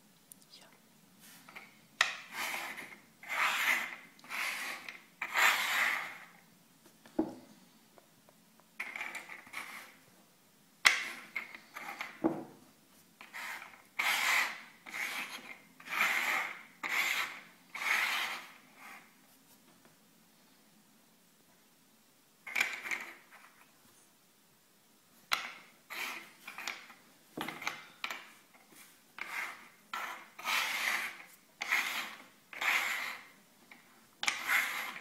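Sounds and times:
covers scraping on wooden table: 1.4s - 6.3s, 8.8s - 10.0s, 25.4s - 33.4s, 34.2s - 35.0s.

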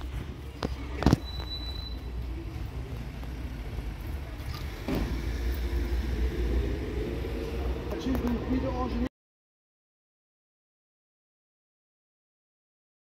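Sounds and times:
car engine idling: 2.0s - 9.1s.

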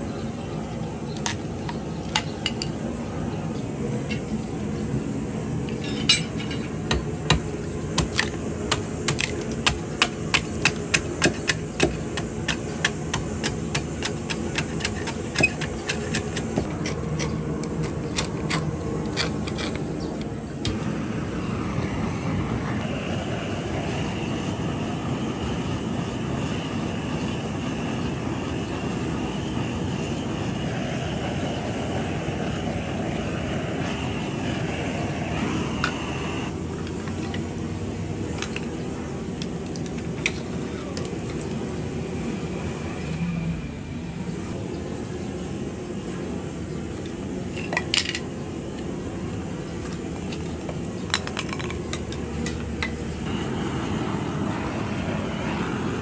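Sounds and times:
torch flame hissing: 20.2s - 36.7s, 53.2s - 56.0s.

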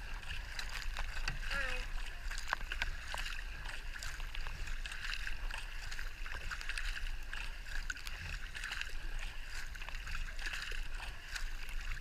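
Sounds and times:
kayak paddles splashing: 0.0s - 12.0s
rush of water: 0.0s - 12.0s.

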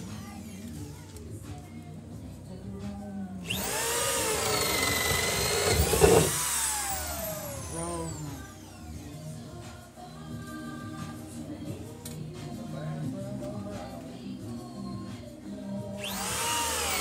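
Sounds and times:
power drill boring into wood: 3.5s - 8.7s, 16.0s - 17.0s.

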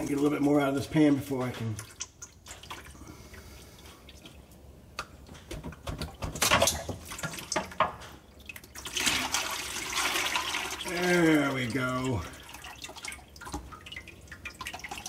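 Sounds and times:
fluid dripping and trickling: 0.0s - 15.0s
splashing pour: 6.6s - 15.0s.

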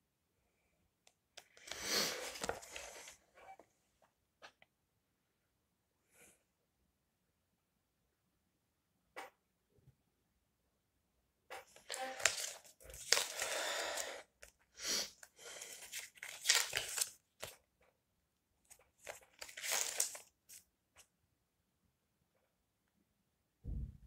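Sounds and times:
paper rustling and crinkling: 1.6s - 3.2s, 11.6s - 14.1s, 15.6s - 17.6s, 18.7s - 20.6s.

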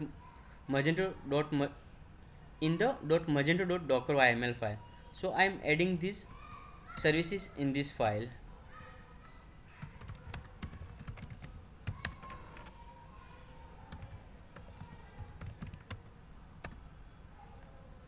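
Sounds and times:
typing on a computer keyboard: 9.8s - 12.7s, 13.9s - 16.8s.

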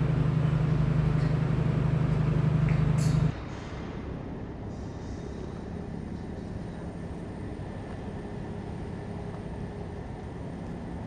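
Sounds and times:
low engine rumble: 0.0s - 3.5s.

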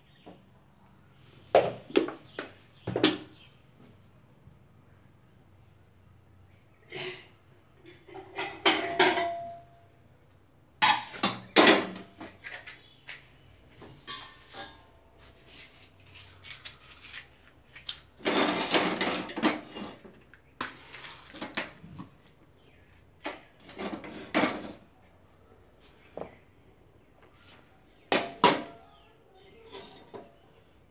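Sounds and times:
pots rattling and scraping: 6.8s - 9.9s, 10.8s - 26.5s, 27.2s - 30.9s
metal cookware clattering: 6.9s - 9.8s, 10.8s - 13.2s, 14.0s - 15.0s, 18.2s - 20.1s, 23.3s - 24.8s, 28.0s - 28.8s, 29.4s - 30.4s.

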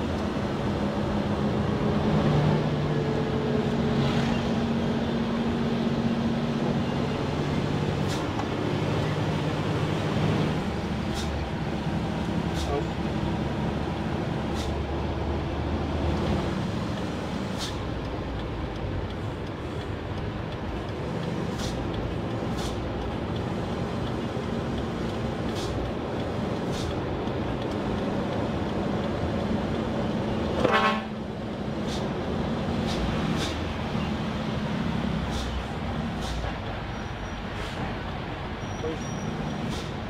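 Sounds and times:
road noise: 0.0s - 40.0s
truck horn toot: 30.6s - 31.2s.

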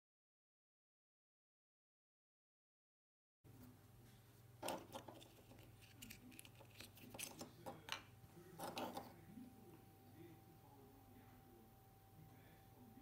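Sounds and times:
faint low hum: 3.5s - 13.0s.

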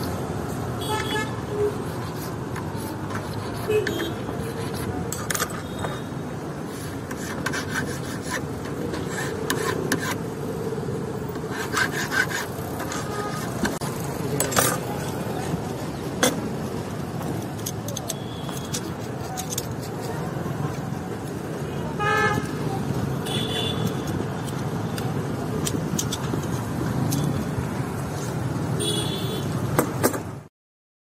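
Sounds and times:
road traffic hum: 0.0s - 30.5s
file scraping metal: 1.6s - 10.4s, 11.3s - 13.8s, 17.6s - 20.7s.

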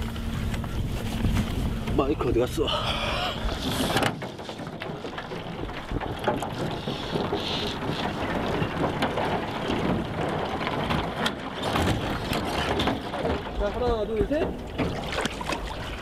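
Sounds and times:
ice crackling against boat hull: 3.3s - 16.0s.

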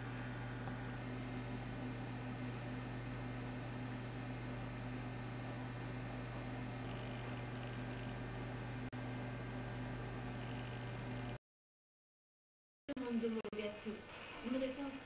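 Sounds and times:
electrical mains hum: 0.0s - 11.4s.

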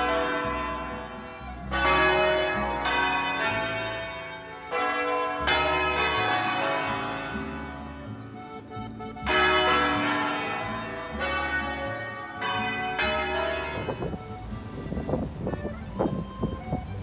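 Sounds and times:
church tower bells ringing: 0.0s - 14.5s.

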